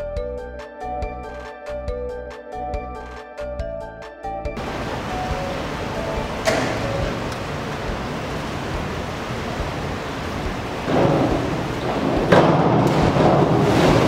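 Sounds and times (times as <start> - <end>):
echoing indoor pool noise: 4.6 - 14.0.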